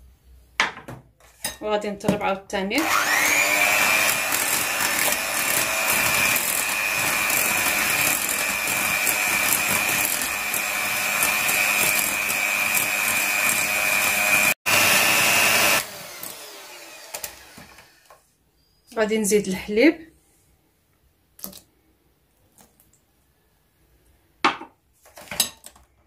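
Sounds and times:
electric hand mixer whining: 2.8 - 18.2.

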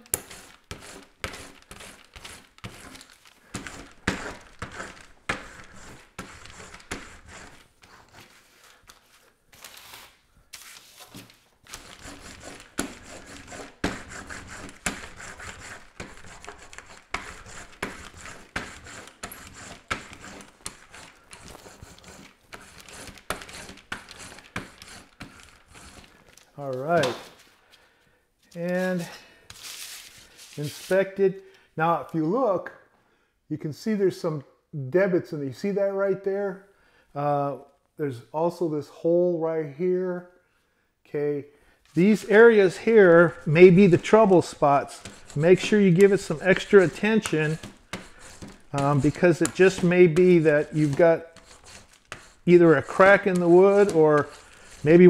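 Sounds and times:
roller rubbing and clicking: 42.2 - 55.0.

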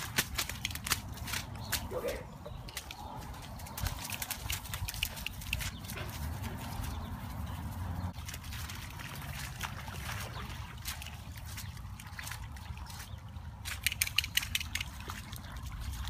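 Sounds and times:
paws splashing through water: 0.0 - 16.0
dogs vocalizing: 1.8 - 3.4.

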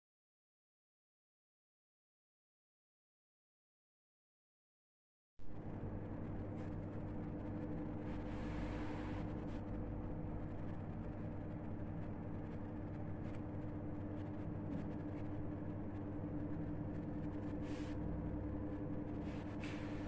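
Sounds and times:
low machine hum: 5.4 - 20.0.

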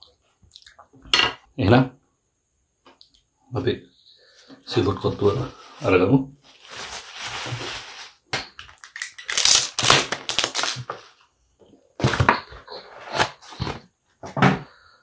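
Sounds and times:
plastic bag crinkling: 5.6 - 11.2.

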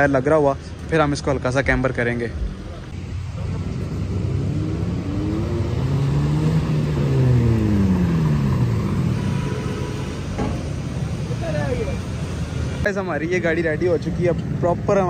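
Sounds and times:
car driving past: 2.9 - 12.9.

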